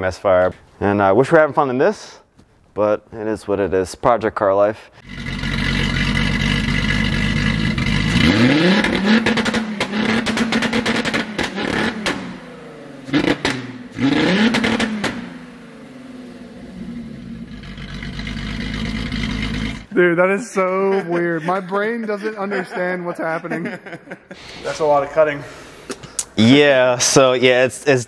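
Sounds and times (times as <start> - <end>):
exhaust pops: 5.0 - 12.4, 13.1 - 15.4
car engine idling and revving: 5.0 - 19.9.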